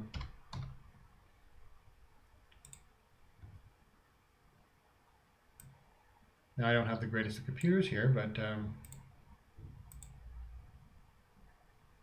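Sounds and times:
computer mouse clicks: 2.5 - 2.9, 5.6 - 5.8, 8.8 - 9.1, 9.7 - 10.2.

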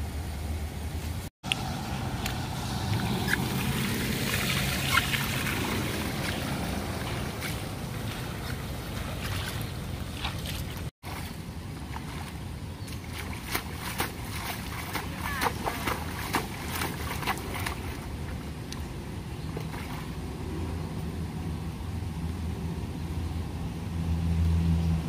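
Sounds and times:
water splashes: 1.5 - 20.8
water rushing along gutter: 1.5 - 21.6.

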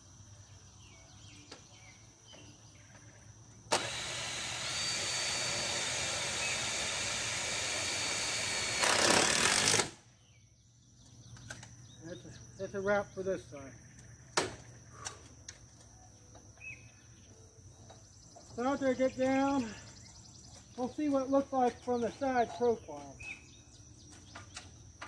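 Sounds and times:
cordless drill driving screw into metal: 3.7 - 10.0.

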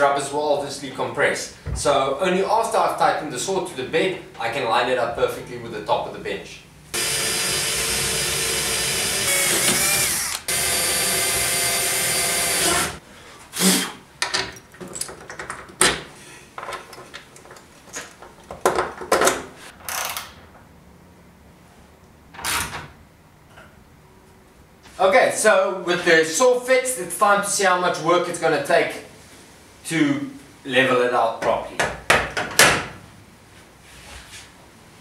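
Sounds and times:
cordless drill running: 7.0 - 13.0
handling clicks and knocks: 14.2 - 19.5.

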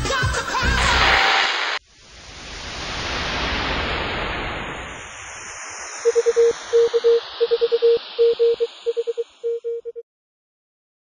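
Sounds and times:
static hiss: 0.9 - 9.9
morse code beeps: 6.1 - 10.0.

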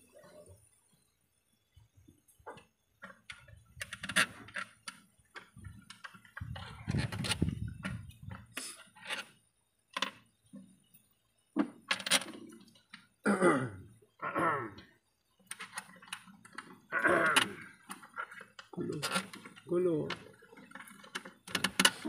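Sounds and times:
muffled vocal sounds: 13.3 - 14.8, 16.9 - 17.8.

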